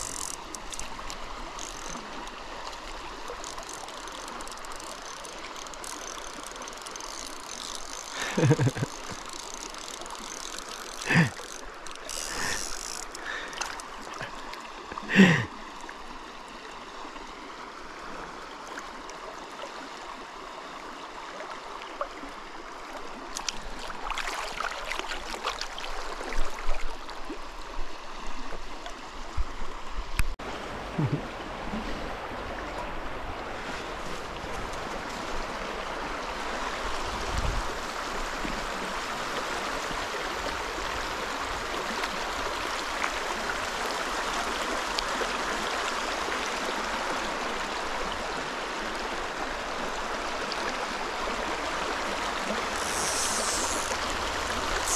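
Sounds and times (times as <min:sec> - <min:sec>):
river water rushing over rocks: 0:00.0 - 0:27.6.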